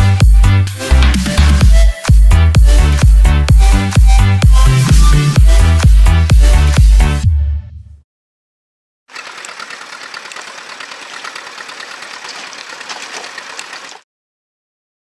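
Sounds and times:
diesel engine clattering: 9.1 - 14.0.

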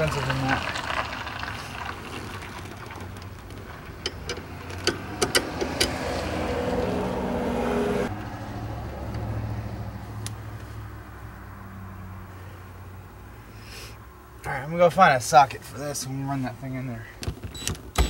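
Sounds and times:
vehicle engine hum: 0.0 - 18.0
clicks of loose bolts and washers: 3.5 - 6.0.

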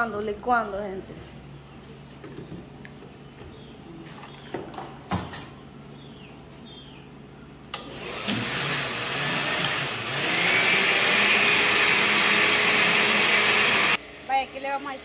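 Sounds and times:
blender motor running: 7.8 - 14.6.

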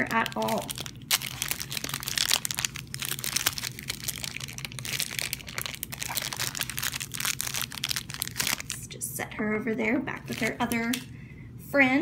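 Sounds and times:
plastic bag crinkling: 0.0 - 8.8, 10.2 - 11.0.

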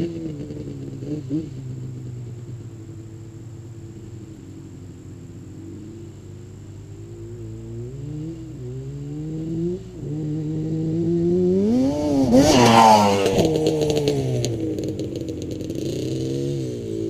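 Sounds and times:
two-stroke engine revving: 7.5 - 17.0.

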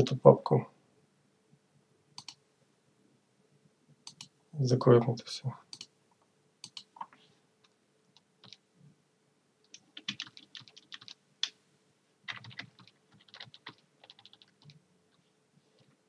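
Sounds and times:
typing on computer keyboard: 2.2 - 2.4, 6.6 - 6.9, 8.2 - 8.6, 9.7 - 11.6, 12.3 - 14.8.

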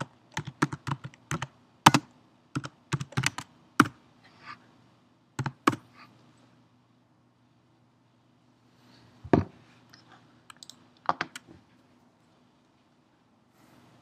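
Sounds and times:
typing on computer keyboard: 0.0 - 4.0, 5.4 - 5.8, 10.5 - 11.5.

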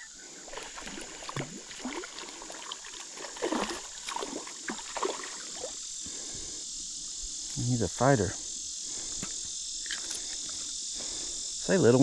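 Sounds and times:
high insect drone: 0.0 - 12.0
fish splashing in water: 0.4 - 5.8.

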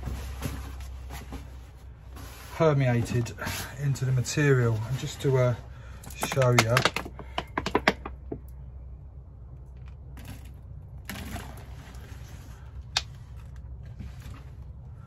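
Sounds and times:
plastic bottle crackling: 5.9 - 8.5.

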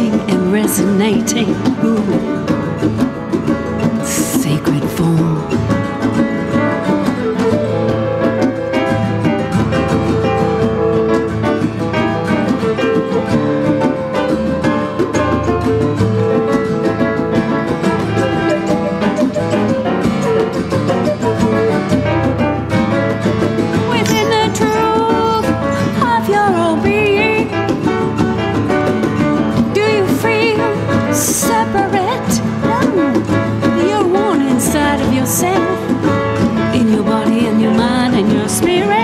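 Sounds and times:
instrumental acoustic band music: 0.0 - 39.0.

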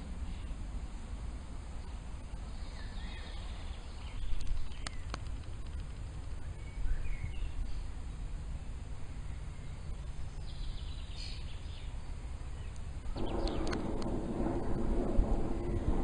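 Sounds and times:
wind rumbling on microphone: 0.0 - 16.0
faint bird chirps: 2.3 - 5.2, 6.3 - 13.9
loud rushing noise: 13.0 - 16.0.

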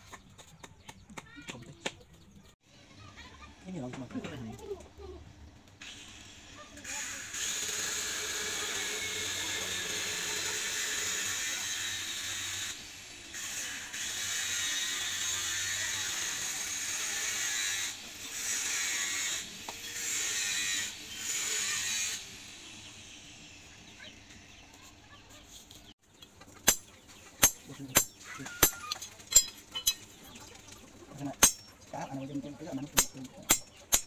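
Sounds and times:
power grinder grinding steel: 5.8 - 23.9.

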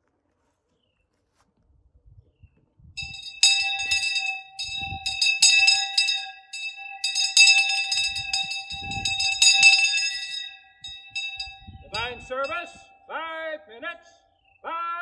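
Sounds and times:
bell ringing: 3.0 - 13.6.

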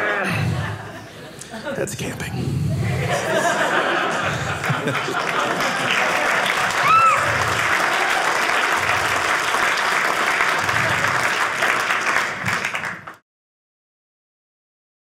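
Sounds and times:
audience applauding: 3.5 - 13.2
person whooping: 6.8 - 8.2.

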